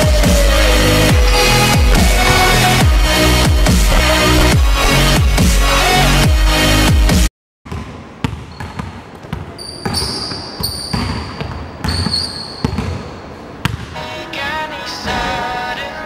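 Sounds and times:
sneakers squeaking on floor: 1.0 - 5.4, 7.7 - 13.8
basketball bouncing on wooden floor: 1.1 - 5.1.

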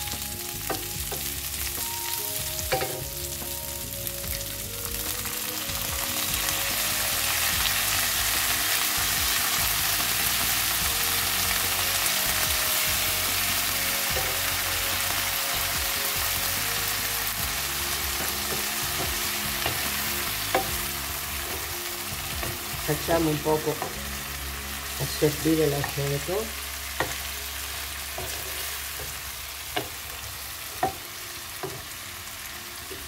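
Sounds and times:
vegetables sizzling in oil: 0.0 - 33.0
wooden spoon knocking pan: 2.7 - 3.1, 18.1 - 24.1.

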